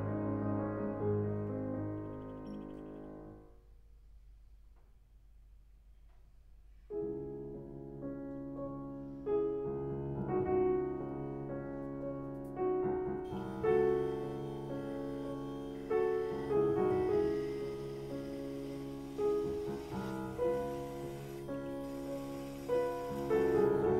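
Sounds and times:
slow classical solo piano: 0:06.9 - 0:23.9.

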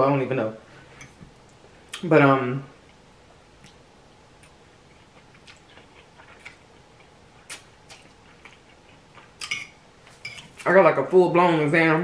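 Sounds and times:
noodles being chewed: 0:04.4 - 0:09.5
fork clinking and scraping on plate: 0:09.4 - 0:10.6.

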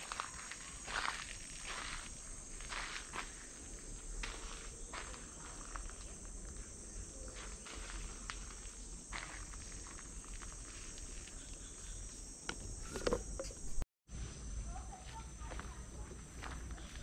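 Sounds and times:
insects droning: 0:00.0 - 0:17.0
footsteps on leaves: 0:07.3 - 0:11.5.

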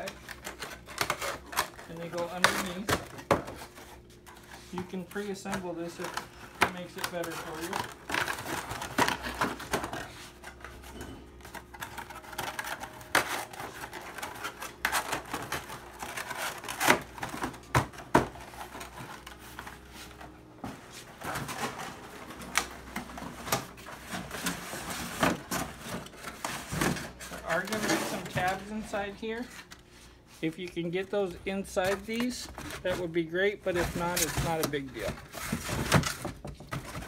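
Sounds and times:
cardboard scraping and rubbing: 0:18.6 - 0:29.6.

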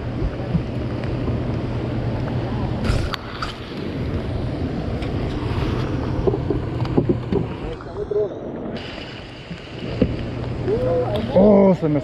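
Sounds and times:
steady low hum: 0:00.0 - 0:12.0
rain: 0:08.5 - 0:12.0.

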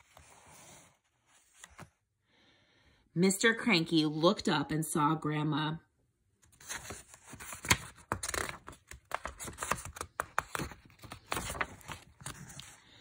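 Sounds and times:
book pages turning: 0:00.0 - 0:02.0, 0:06.4 - 0:13.0.

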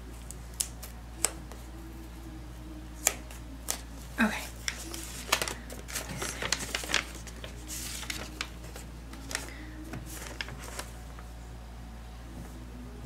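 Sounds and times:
paper and envelope rustling: 0:03.0 - 0:11.4.

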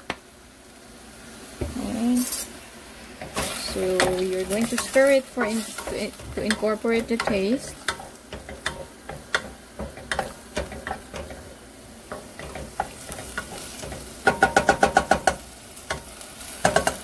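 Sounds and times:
beef sizzling in oil: 0:00.0 - 0:17.0
utensil scraping a pot: 0:03.2 - 0:14.1.

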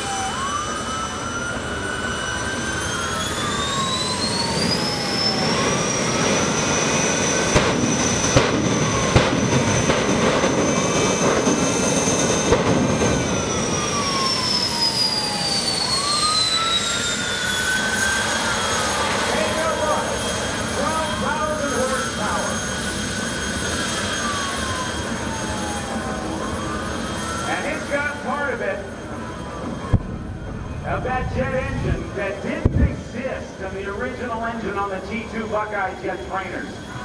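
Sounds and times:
jet turbine engine whine: 0:00.0 - 0:37.0
low tone sweeping up and down: 0:29.4 - 0:34.3.

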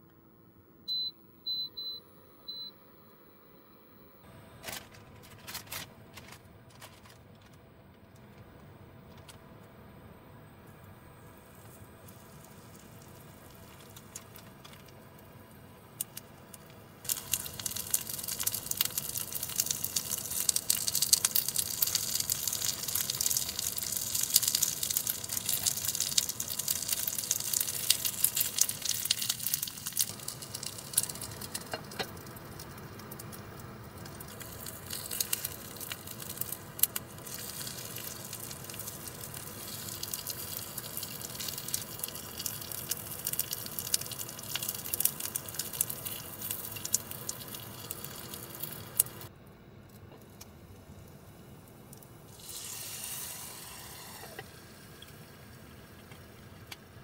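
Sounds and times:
dumplings sizzling in hot oil: 0:11.3 - 0:49.3, 0:50.8 - 0:57.0.

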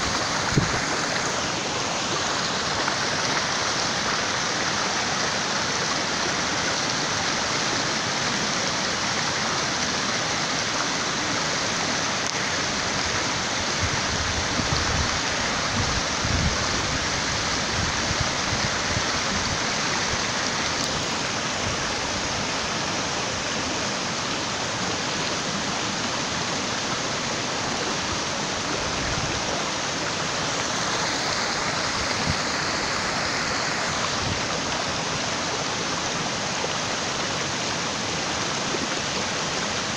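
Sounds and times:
water pouring down spillway: 0:00.0 - 0:39.9.

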